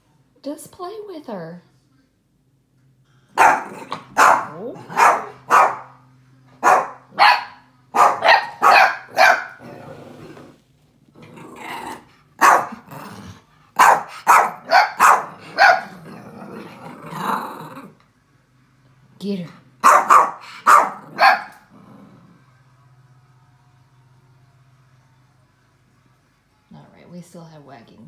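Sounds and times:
puppies growling: 3.4 - 5.6, 9.4 - 18.1, 20.4 - 22.6
puppies barking: 3.4 - 6.0, 6.6 - 9.6, 12.4 - 12.8, 13.8 - 16.0, 19.8 - 21.7.

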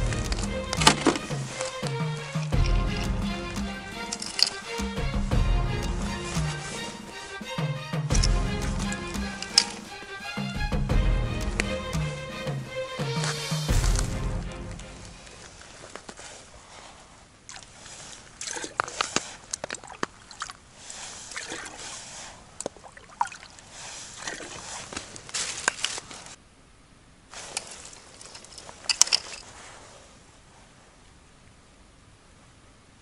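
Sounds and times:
water sloshing: 0.0 - 10.4, 14.8 - 26.4
rustling and small clicks: 24.3 - 26.4, 27.3 - 30.0.

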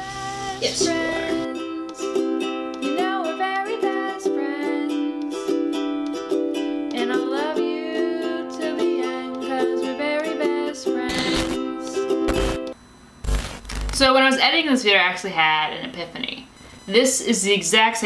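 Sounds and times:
plucked ukulele tune: 0.8 - 12.8.

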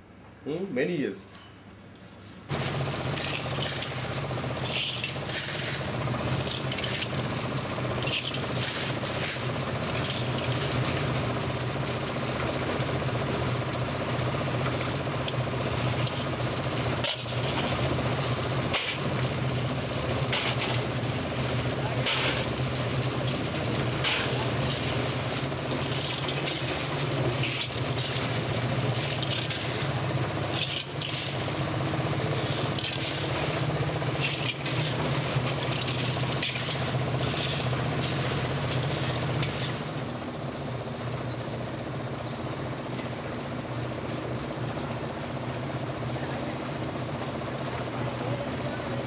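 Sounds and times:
shovels scraping sand and gravel: 2.5 - 11.4, 14.8 - 40.0
concrete mixer engine running: 2.5 - 49.0.

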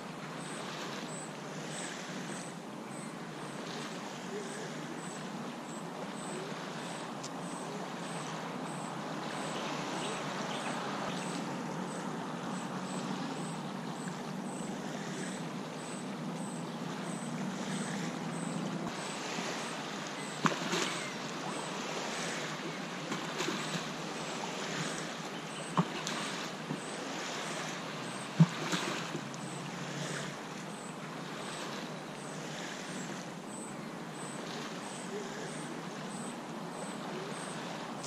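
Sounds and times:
distant engine hum: 0.0 - 38.0
waves lapping on sand: 0.0 - 38.0.

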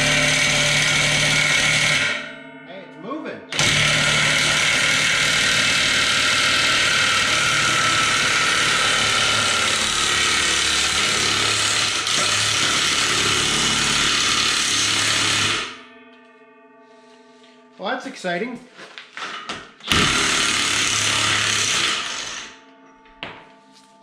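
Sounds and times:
impact wrench hammering: 3.5 - 15.8, 19.2 - 22.5.

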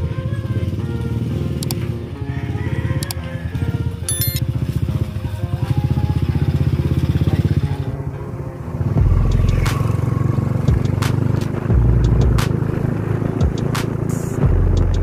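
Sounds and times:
vehicle rumbling along road: 5.8 - 15.0
motorcycle engine running: 8.8 - 15.0.

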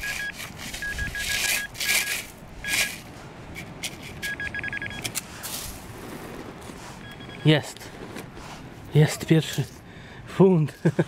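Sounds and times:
metal detector beeping: 0.0 - 3.1, 4.2 - 5.2, 7.0 - 7.8
probe scraping through sand: 0.0 - 3.7.

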